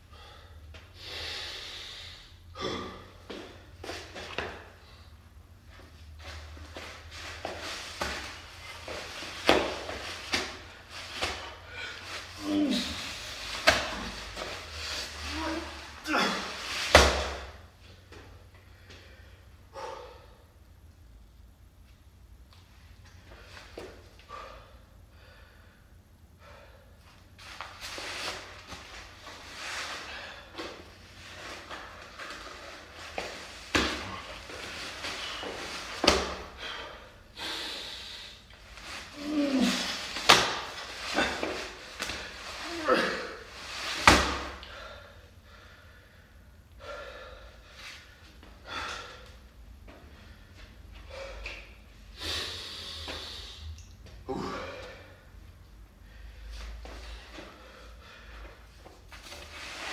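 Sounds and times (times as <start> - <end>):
man breathing hard: 0.0 - 5.4, 7.2 - 20.6, 23.2 - 27.2, 29.3 - 43.6, 44.4 - 59.0.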